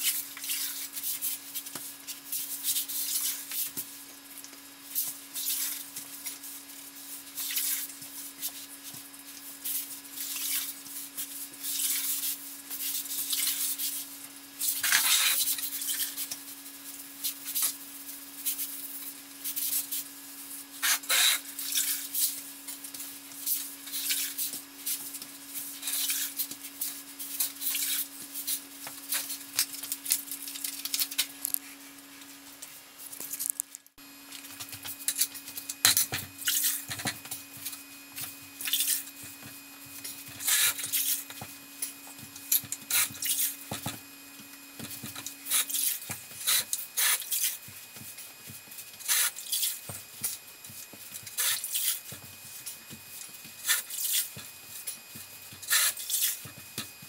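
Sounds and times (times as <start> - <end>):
sponge scrubbing floor tiles: 0.0 - 4.0, 4.8 - 33.6, 44.8 - 57.0.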